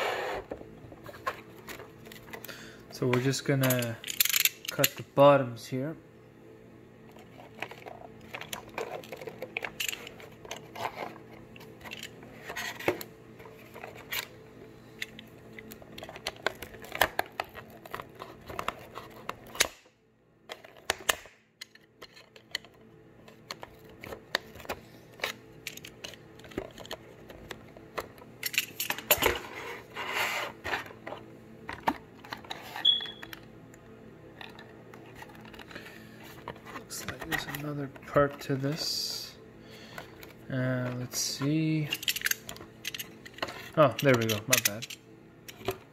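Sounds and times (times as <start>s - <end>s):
packaging clicks and scrapes: 7.1s - 14.4s, 15.0s - 19.7s, 20.5s - 33.4s, 34.4s - 39.2s.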